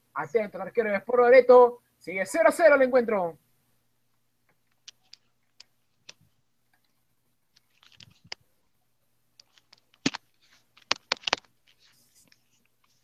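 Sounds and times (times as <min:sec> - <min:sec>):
sharp clicks and taps: 0:09.4 - 0:10.2, 0:10.8 - 0:11.5.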